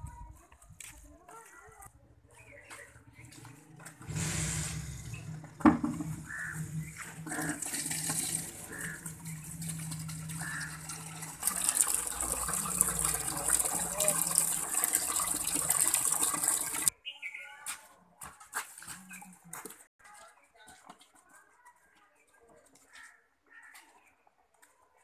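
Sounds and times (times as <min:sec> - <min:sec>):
water pouring into plastic bucket: 0:05.6 - 0:16.9.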